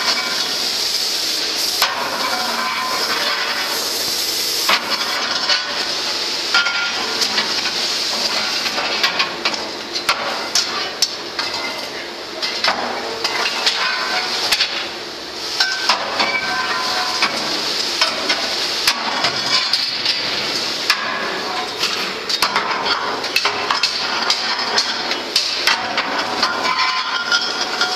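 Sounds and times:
steady hiss: 0.0 - 8.9.

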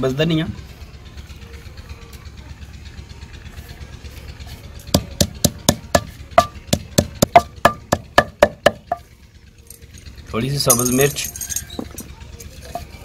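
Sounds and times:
pestle pounding in stone mortar: 4.9 - 9.0.

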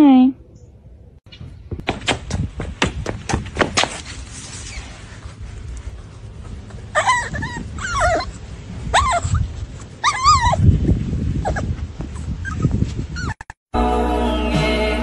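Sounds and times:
puppy whimpering: 6.9 - 10.6, 11.4 - 13.6.

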